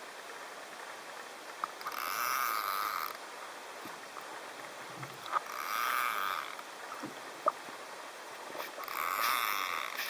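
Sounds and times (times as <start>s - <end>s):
underwater bubbling hiss: 8.4s - 10.0s.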